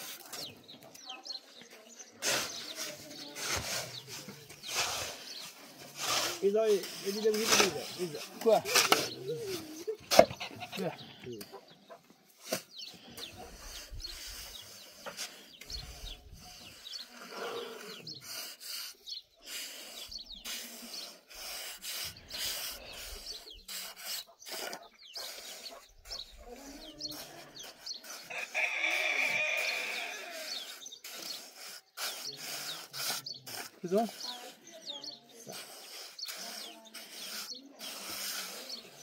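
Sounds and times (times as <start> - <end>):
chickens clucking: 6.6 - 18.2, 22.0 - 32.4.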